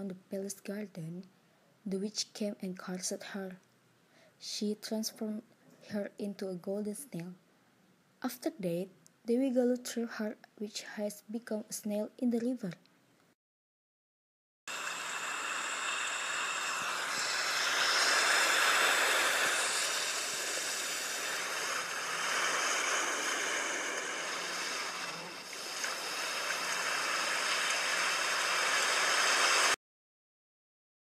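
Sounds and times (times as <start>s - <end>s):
rushing river water: 14.7s - 29.8s.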